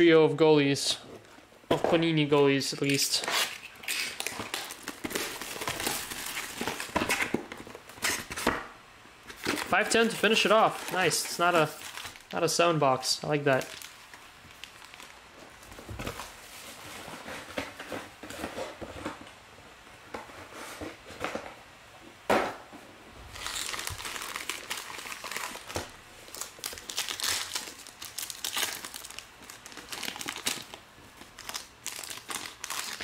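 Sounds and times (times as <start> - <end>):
foil wrappers crinkling: 2.7 - 8.3, 9.3 - 12.6, 13.2 - 17.8, 23.3 - 33.0
foil pack tearing open: 3.0 - 7.3, 23.4 - 33.0.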